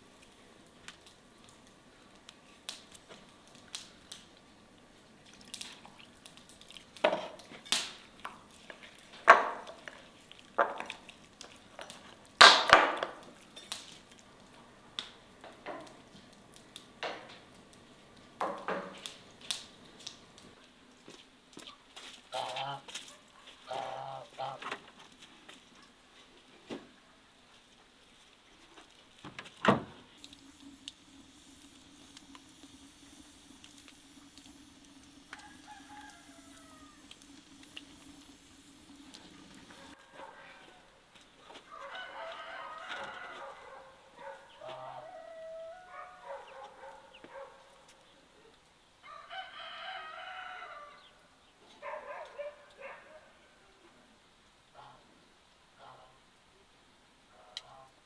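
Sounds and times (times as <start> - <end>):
chickens clucking: 33.6 - 40.8
rooster crowing: 34.1 - 38.2, 41.6 - 44.0, 44.6 - 46.3, 49.0 - 51.2.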